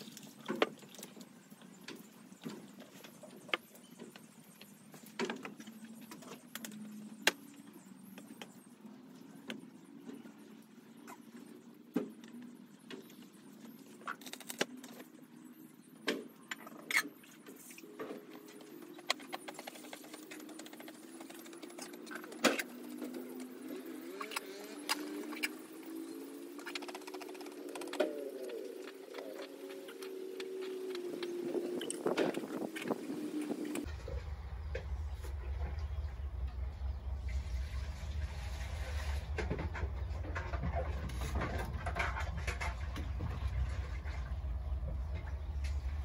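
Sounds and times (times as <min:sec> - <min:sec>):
low engine hum: 0:20.5 - 0:46.0.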